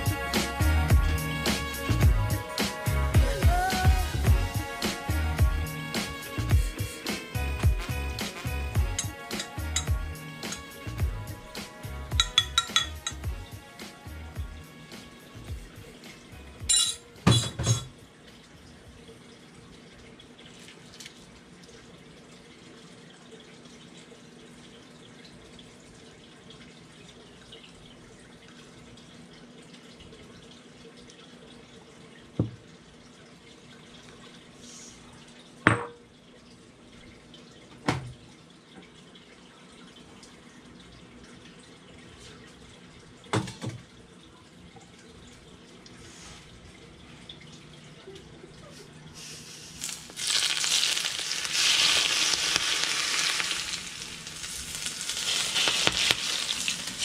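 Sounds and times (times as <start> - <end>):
faint kitchen hum and hiss: 14.9 - 57.0
dishes knocking on counter: 17.2 - 17.9, 32.4 - 32.6, 35.7 - 36.0, 43.3 - 43.8.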